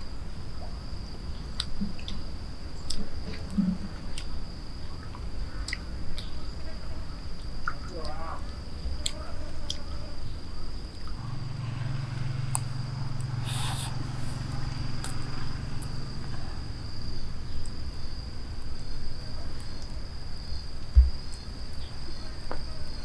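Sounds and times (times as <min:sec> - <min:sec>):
insects trilling: 0:00.0 - 0:23.0
low hum: 0:10.3 - 0:19.4.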